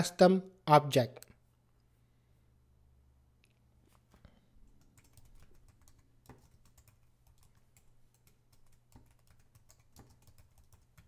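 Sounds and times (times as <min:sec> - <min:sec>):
typing on computer keyboard: 0:04.6 - 0:11.0.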